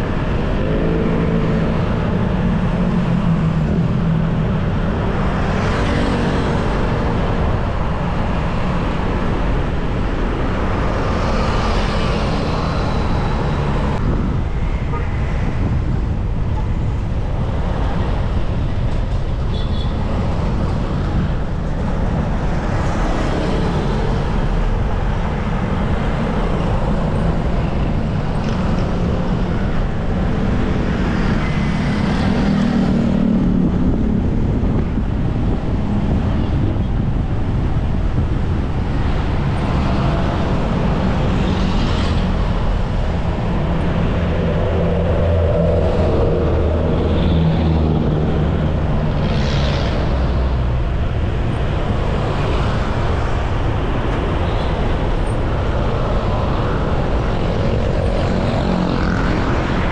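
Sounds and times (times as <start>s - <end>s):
traffic passing on road: 0.0s - 59.9s
wind noise on microphone: 0.0s - 59.9s.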